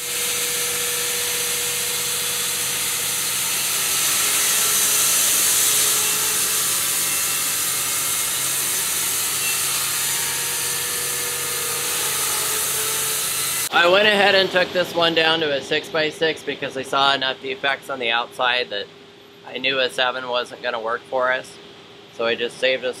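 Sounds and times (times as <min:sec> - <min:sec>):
band saw blade sawing wood: 0:00.0 - 0:13.7.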